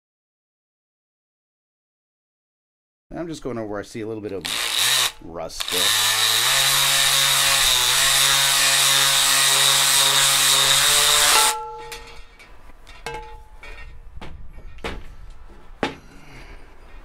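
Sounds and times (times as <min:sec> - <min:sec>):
sander on cast iron: 0:04.4 - 0:12.4.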